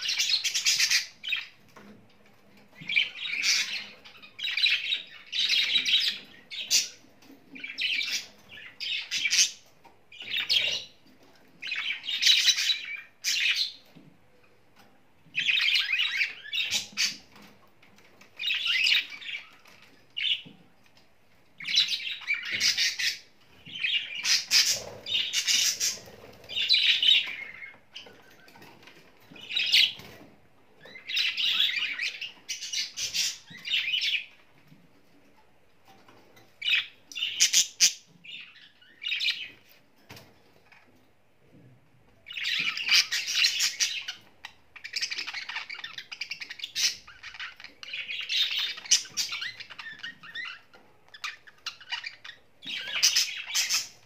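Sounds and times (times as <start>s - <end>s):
budgerigars chattering and chirping: 0.0s - 1.6s, 2.8s - 11.0s, 11.6s - 13.8s, 15.3s - 17.5s, 18.3s - 20.5s, 21.6s - 30.2s, 30.8s - 34.4s, 42.3s - 54.0s.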